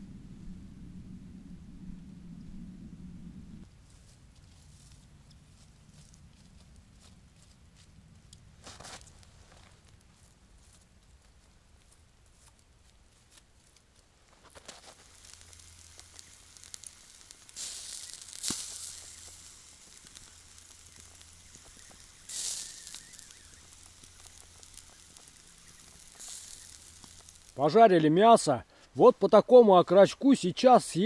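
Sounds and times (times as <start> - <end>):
coals crackling: 2.4 - 31.0
chicken sizzling on grill: 14.4 - 27.7.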